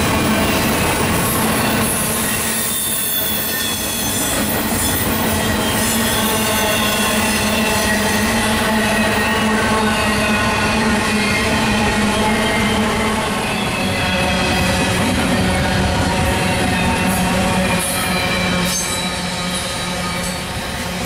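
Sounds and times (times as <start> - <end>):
steel train wheels on rail: 0.0 - 21.0
wheel squeal: 0.6 - 8.3.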